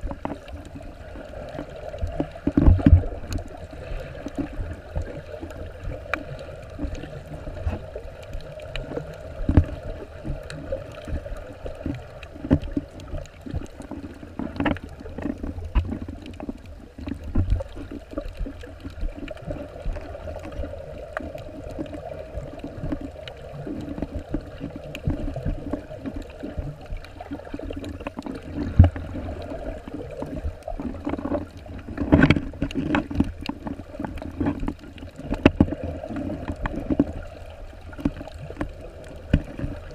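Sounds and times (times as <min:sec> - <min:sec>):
muffled underwater rush: 0:00.0 - 0:39.9
underwater knocks and clicks: 0:00.0 - 0:39.9.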